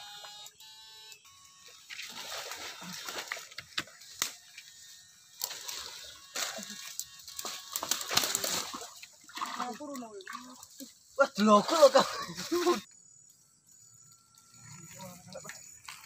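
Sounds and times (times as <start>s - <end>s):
buzzing tones: 0.0s - 9.5s, 11.8s - 16.0s
stream water splashing: 1.9s - 3.9s, 7.4s - 12.8s.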